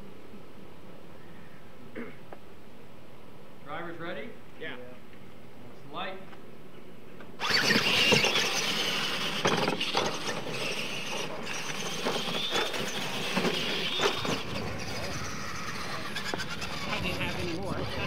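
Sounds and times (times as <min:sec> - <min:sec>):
rc truck motor whine: 0:07.4 - 0:18.0
tyres scrabbling on dirt: 0:07.4 - 0:18.0.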